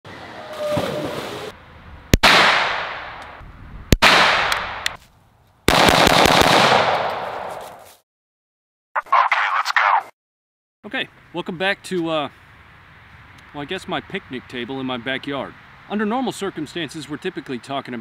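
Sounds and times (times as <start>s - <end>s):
echoing gunshots: 2.2s - 4.9s, 5.7s - 7.6s
rapid gunfire: 5.7s - 7.1s.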